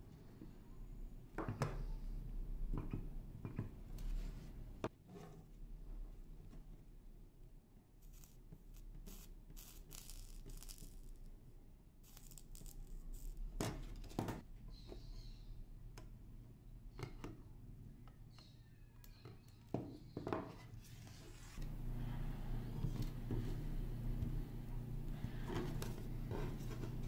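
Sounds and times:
low steady hum: 21.0s - 27.0s.

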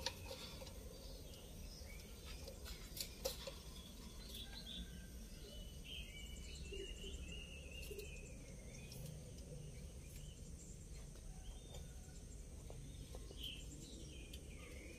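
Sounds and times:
birds chirping: 0.0s - 14.9s.

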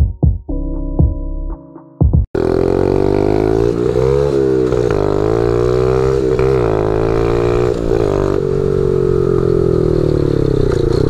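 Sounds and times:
small motorbike engine revving: 2.4s - 11.0s.

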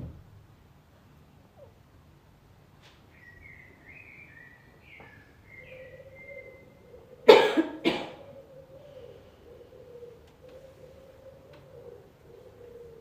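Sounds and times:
person coughing: 7.3s - 8.2s.

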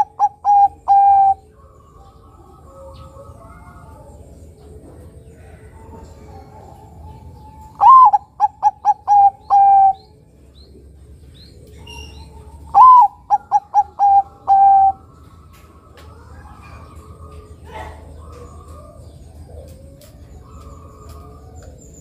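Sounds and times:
dove cooing song: 0.0s - 22.0s
faint high bird chirps: 11.3s - 18.8s.

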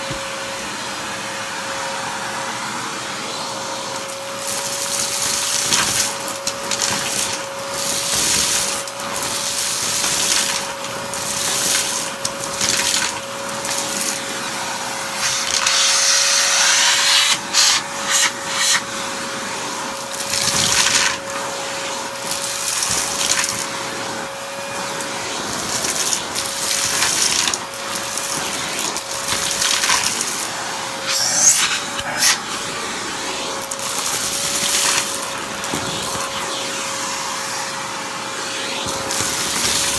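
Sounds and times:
vacuum cleaner motor whine: 0.0s - 39.9s
crackles in vacuum hose: 25.5s - 30.5s.

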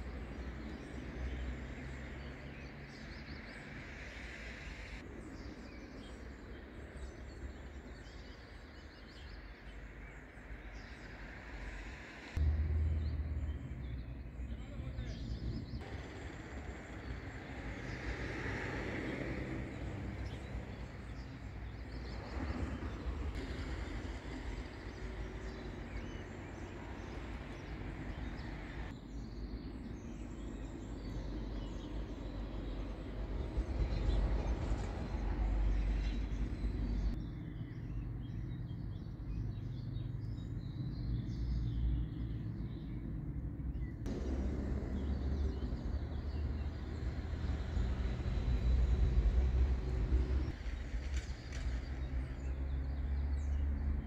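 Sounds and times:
faint birdsong: 0.0s - 54.0s
low outdoor rumble: 11.0s - 18.2s, 29.9s - 54.0s.

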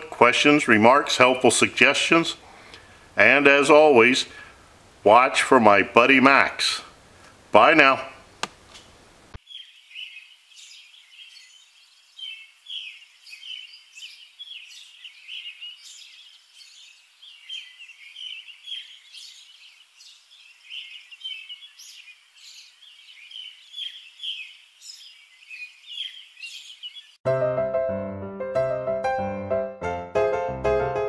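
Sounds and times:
birds chirping: 5.1s - 27.2s.

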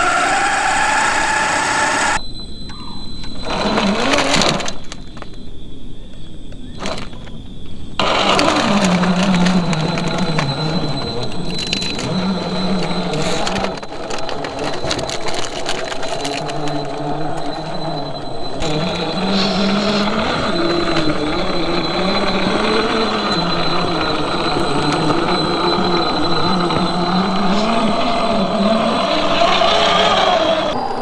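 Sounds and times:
rc car motor and gears whining: 0.0s - 2.2s, 2.8s - 5.6s, 6.7s - 31.0s
tyres grinding over rock: 8.0s - 17.8s.

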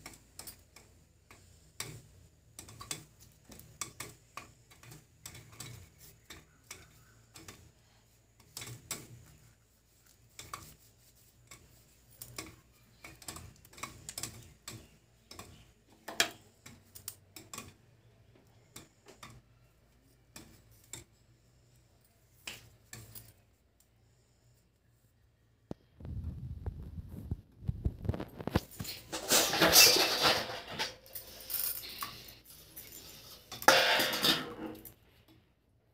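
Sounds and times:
popcorn popping: 0.0s - 19.5s, 25.7s - 31.2s, 33.0s - 35.0s.

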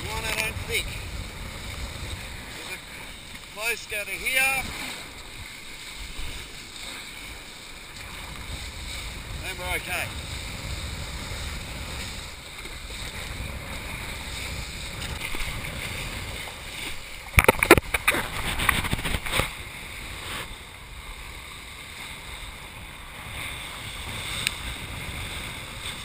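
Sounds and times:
water rushing past board: 0.0s - 20.8s
wind buffeting microphone: 0.0s - 26.0s.

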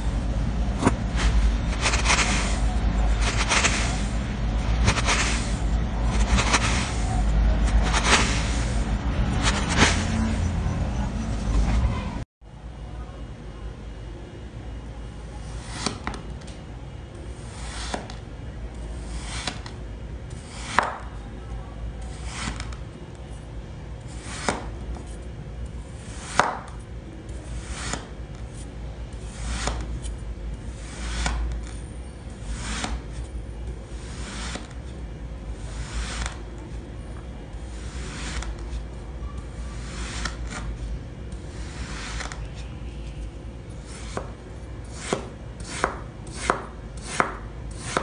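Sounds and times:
knife slicing through sand: 1.1s - 4.2s, 4.8s - 8.8s, 9.4s - 10.2s.

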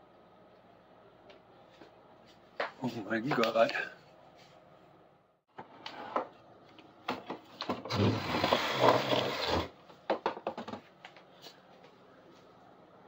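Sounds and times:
broom scraping concrete floor: 7.9s - 9.8s.

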